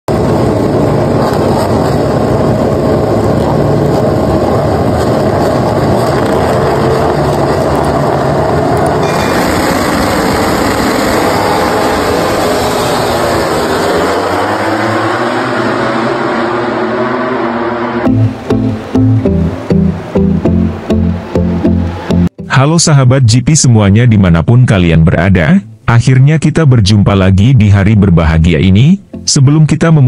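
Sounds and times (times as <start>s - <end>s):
motorcycle engines revving: 0.1s - 22.2s.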